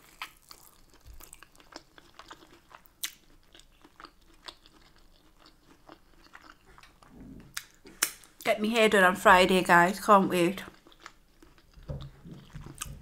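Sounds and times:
wet chewing mouth clicks: 0:10.7 - 0:13.0.

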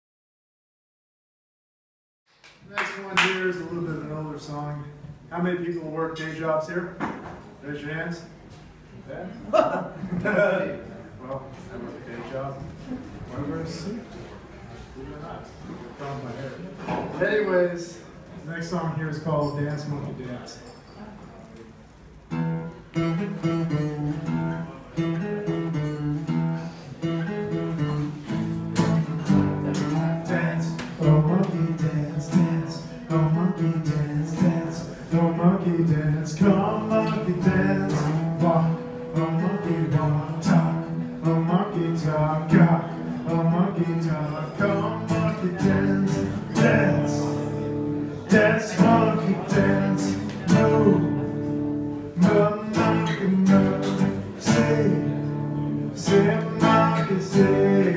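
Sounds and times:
acoustic guitar strumming: 0:22.3 - 0:57.9.

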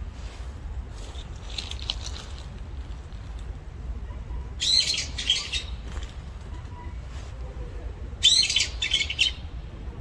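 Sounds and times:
low outdoor rumble: 0:00.0 - 0:10.0.

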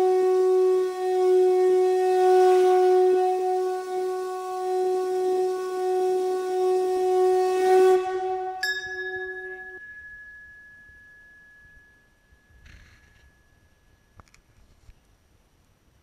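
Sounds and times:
long blown horn note: 0:00.0 - 0:09.9
brass bell ringing: 0:08.2 - 0:14.2.

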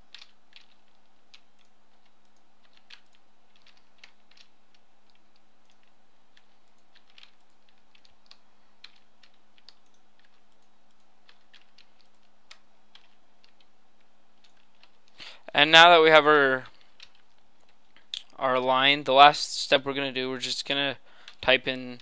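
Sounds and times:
faint low hum: 0:00.0 - 0:22.0
computer keyboard clicks: 0:00.1 - 0:13.7, 0:16.7 - 0:18.2.

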